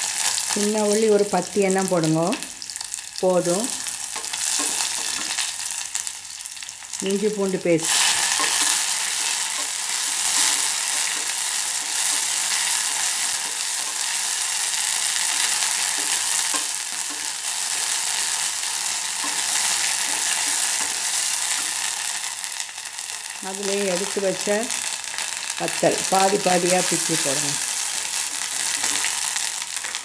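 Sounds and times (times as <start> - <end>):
frying hiss in oil: 0.0 - 30.0
spatula scraping ticks: 3.9 - 5.5, 7.9 - 23.4.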